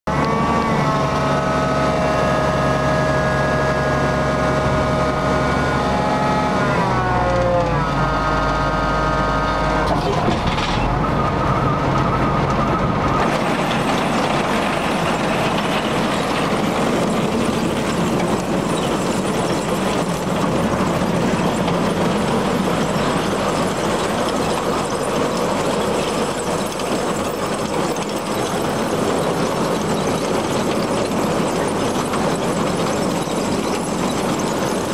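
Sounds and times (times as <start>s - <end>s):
engine humming: 0.1s - 34.9s.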